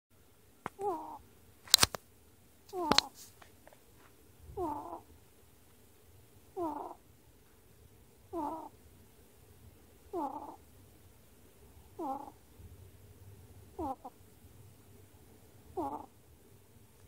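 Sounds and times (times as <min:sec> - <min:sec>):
ferret snoring: 0:00.8 - 0:01.2, 0:04.6 - 0:05.1, 0:06.5 - 0:07.0, 0:08.3 - 0:08.7, 0:10.1 - 0:10.6, 0:11.9 - 0:12.4, 0:13.7 - 0:14.2, 0:15.7 - 0:16.2.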